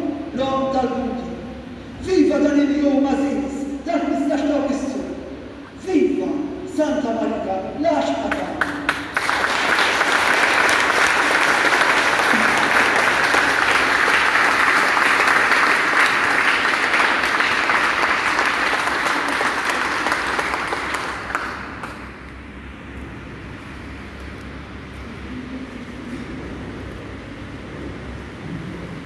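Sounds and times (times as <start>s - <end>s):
congregation applauding: 8.3s - 22.2s.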